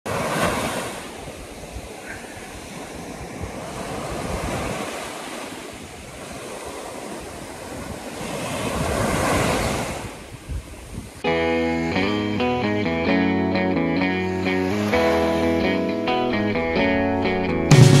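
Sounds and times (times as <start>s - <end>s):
waves breaking on beach: 0.1s - 12.0s, 14.1s - 15.9s
wind buffeting microphone: 1.2s - 11.3s.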